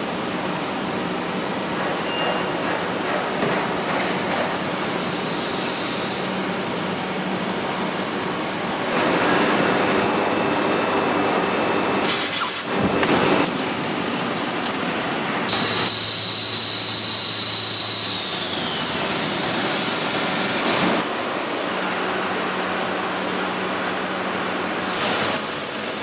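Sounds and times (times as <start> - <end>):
industrial vacuum cleaner running: 0.0 - 13.6, 15.5 - 26.0
sharp hiss: 12.0 - 12.8.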